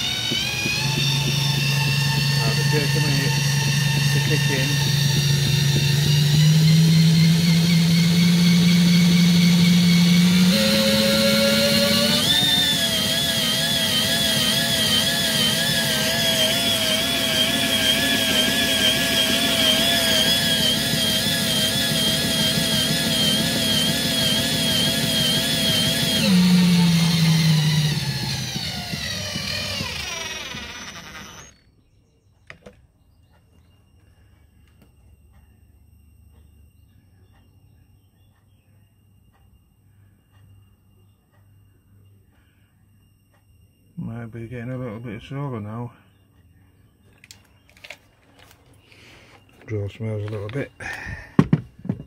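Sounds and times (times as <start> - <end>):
cordless drill motor whine: 0.0 - 31.7, 47.1 - 52.0.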